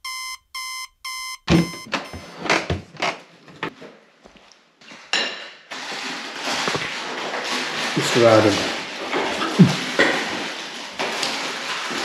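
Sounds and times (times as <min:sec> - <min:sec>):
alarm clock beep: 0:00.0 - 0:02.4.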